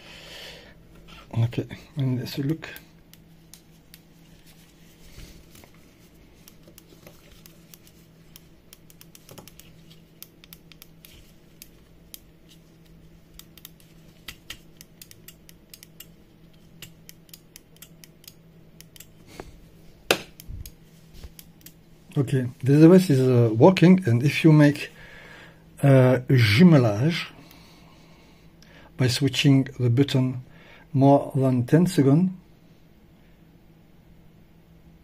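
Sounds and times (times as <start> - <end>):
faint low hum: 0.0 - 35.0
clicks and scratches of handling plastic: 2.4 - 19.5.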